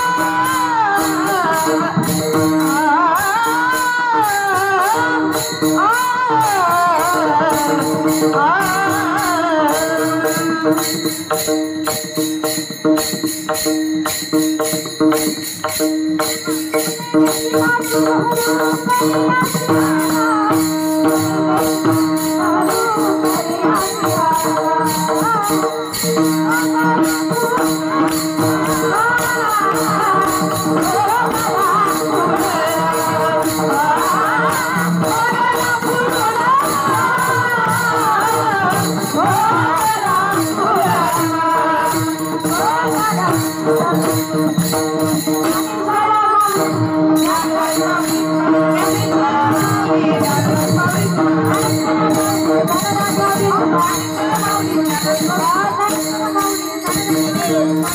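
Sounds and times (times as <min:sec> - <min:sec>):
person singing: 0:00.0 - 0:11.4
hand cymbals clanging: 0:00.0 - 0:57.9.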